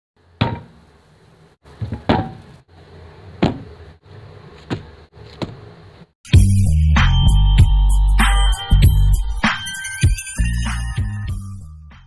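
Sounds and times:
cans knocking on table: 0.4s - 0.8s, 1.8s - 2.5s, 3.4s - 3.7s.

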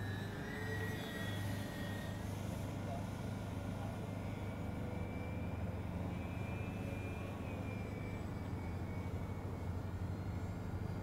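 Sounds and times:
model plane motors whining: 0.0s - 2.5s.

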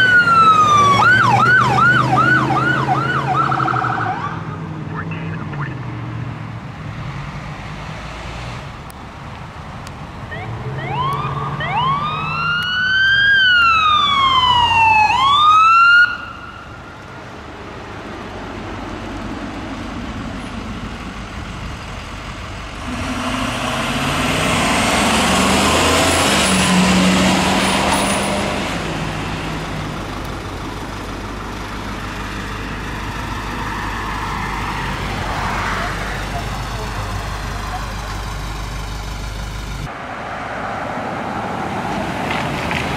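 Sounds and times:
electronic wail siren: 0.0s - 4.6s, 10.3s - 16.7s
ambulance driving past: 0.0s - 6.4s, 10.0s - 42.9s.

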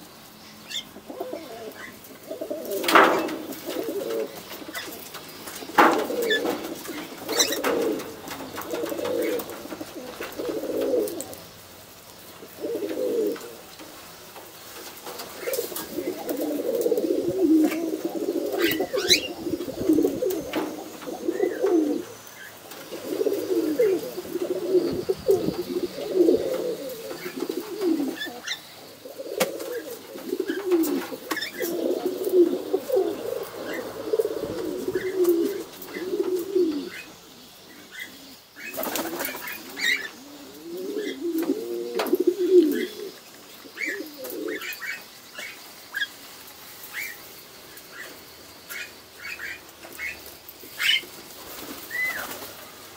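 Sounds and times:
pigeons cooing: 0.0s - 52.9s
wingbeats flurry: 0.8s - 28.6s, 37.9s - 42.9s, 43.9s - 52.9s.

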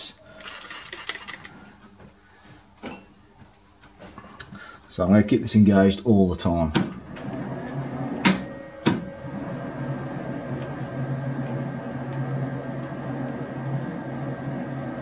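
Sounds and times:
metal lathe humming: 7.0s - 15.0s.

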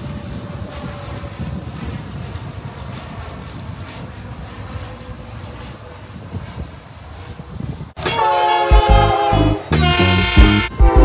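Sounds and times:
propeller plane droning overhead: 0.0s - 11.0s
music: 8.0s - 11.0s.

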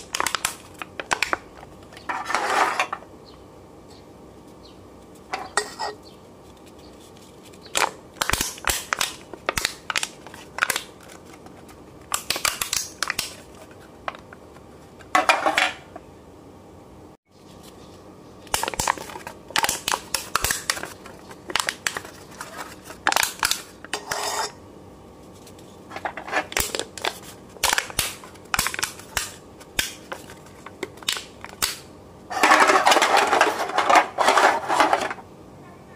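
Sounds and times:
beer cans being crushed: 30.9s - 35.2s.

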